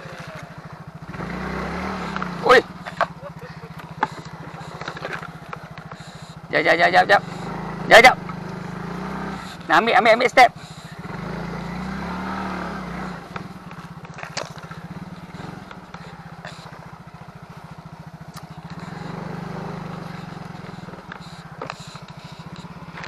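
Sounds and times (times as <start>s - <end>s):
knocks and rattles on dirt track: 0.0s - 23.0s
small motorcycle engine puttering: 0.0s - 23.0s.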